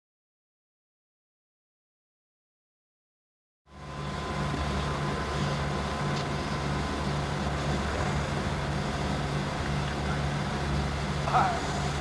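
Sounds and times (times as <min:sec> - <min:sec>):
electric train droning: 0:03.7 - 0:12.0
faint steady whine: 0:03.7 - 0:12.0.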